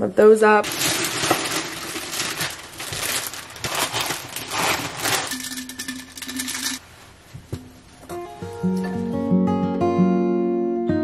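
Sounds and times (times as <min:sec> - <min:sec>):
paper wrapping crinkling: 0:00.6 - 0:06.8.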